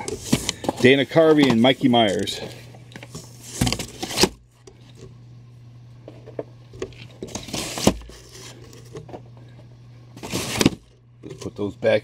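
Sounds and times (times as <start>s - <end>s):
cardboard scraping rustle: 0.0s - 4.4s, 6.9s - 8.9s, 10.2s - 10.9s
steady low hum: 0.0s - 12.0s.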